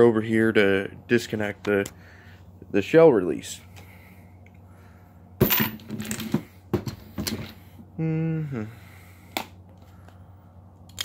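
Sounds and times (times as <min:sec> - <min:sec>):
coins clattering on wooden workbench: 0:05.4 - 0:07.6.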